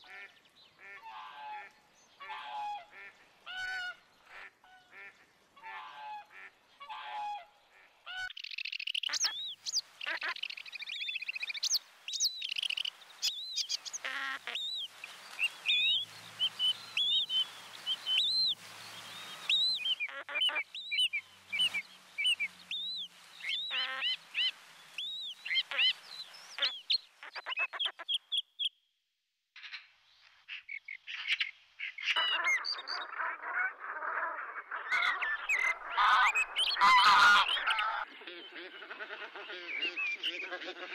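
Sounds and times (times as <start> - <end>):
flock of geese calling: 12.5 - 28.0, 32.2 - 40.9.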